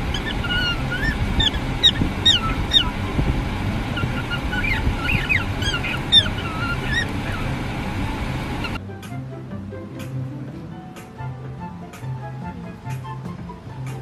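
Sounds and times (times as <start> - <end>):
cockatiel chirping and whistling: 0.0 - 8.8
low steady rumble: 0.0 - 14.0.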